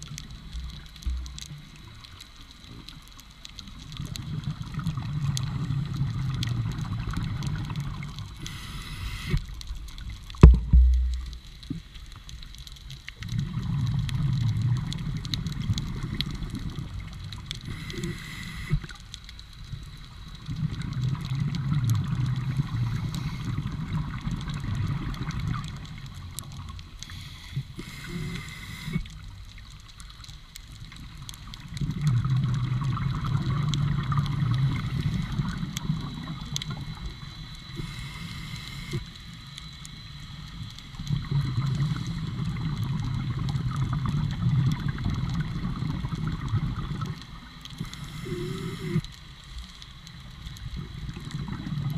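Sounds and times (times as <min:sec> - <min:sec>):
exhaled bubbles burbling: 0:03.7 - 0:11.9, 0:13.2 - 0:19.0, 0:20.4 - 0:29.2, 0:31.2 - 0:39.0, 0:41.0 - 0:49.1, 0:50.6 - 0:51.9
regulator hissing on inhalation: 0:08.4 - 0:09.5, 0:17.6 - 0:18.9, 0:27.0 - 0:29.1, 0:37.7 - 0:39.1, 0:47.8 - 0:49.1
sharp thump: 0:10.4 - 0:11.0.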